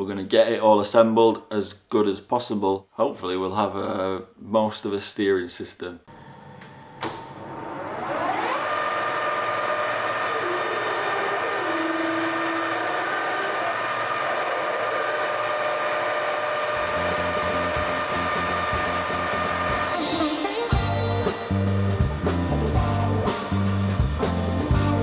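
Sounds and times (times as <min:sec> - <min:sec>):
metal lathe whining: 0:07.4 - 0:22.5
drill boring into aluminium: 0:08.0 - 0:20.2.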